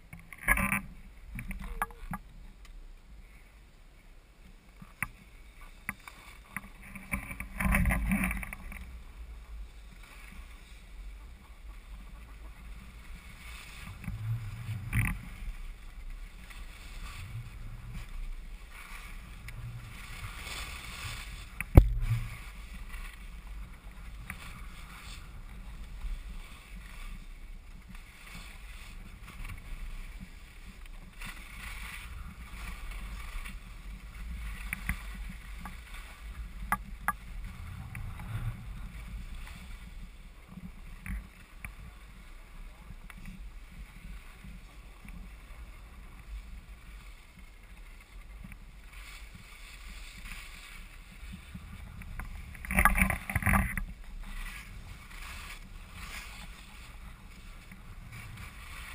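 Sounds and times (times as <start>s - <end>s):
skis sliding on packed snow: 0.0s - 58.9s
steady low rumble: 1.0s - 58.9s.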